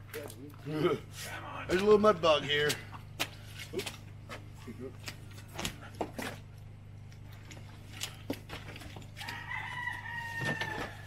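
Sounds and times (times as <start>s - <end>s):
rooster crowing: 9.2s - 11.0s.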